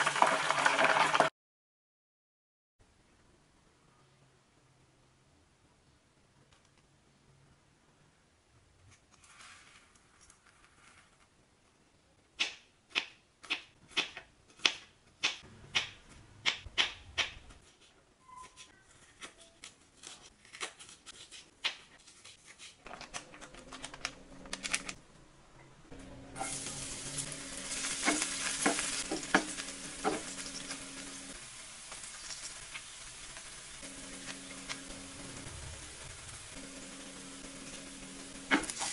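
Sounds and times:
onions sizzling in a pan: 26.0 - 38.9.

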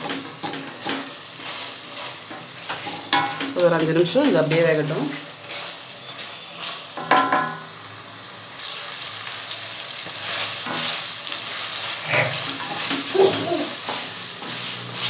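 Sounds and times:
meat sizzling in oil: 0.0 - 15.0
wooden spatula scraping pan: 10.1 - 15.0.

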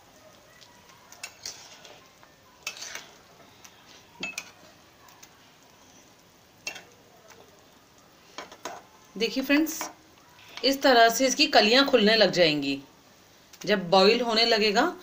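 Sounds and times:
spoon knocking and scraping pan: 1.2 - 2.0, 2.6 - 3.2, 4.2 - 4.6, 8.4 - 8.9, 9.7 - 10.0.

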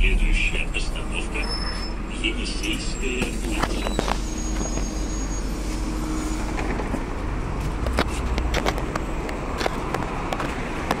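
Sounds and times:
steady low rumble: 0.0 - 4.2.

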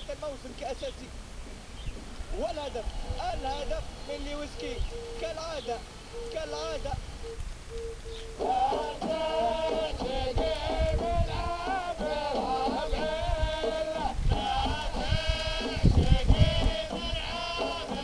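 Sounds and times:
men chanting through tv speaker: 2.3 - 6.9, 8.3 - 18.0.

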